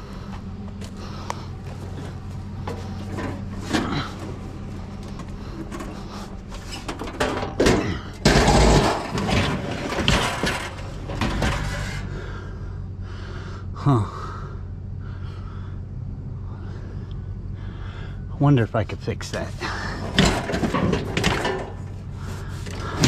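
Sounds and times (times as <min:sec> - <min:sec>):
steady low hum: 0:00.0 - 0:23.0
hard objects knocking and clattering: 0:06.8 - 0:11.9, 0:20.0 - 0:21.8.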